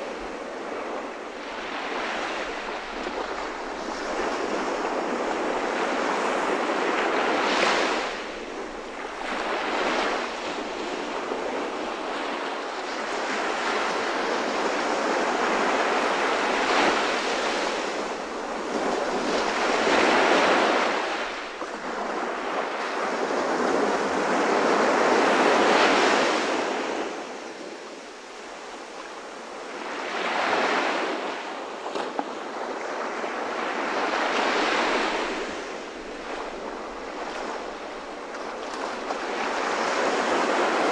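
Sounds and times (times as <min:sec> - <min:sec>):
ocean waves washing in: 0:00.0 - 0:40.9.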